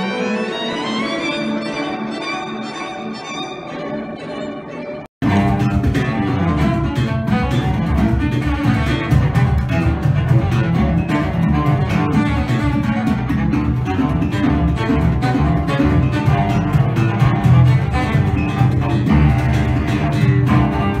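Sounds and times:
bowed cello: 0:00.0 - 0:21.0
electric guitar playing: 0:05.2 - 0:21.0.

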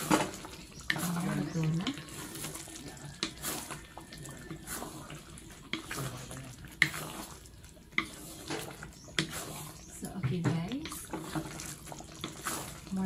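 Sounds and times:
sauce sloshing and squelching: 0:00.0 - 0:10.0, 0:10.8 - 0:13.0
spatula scraping metal wok: 0:00.0 - 0:13.0.

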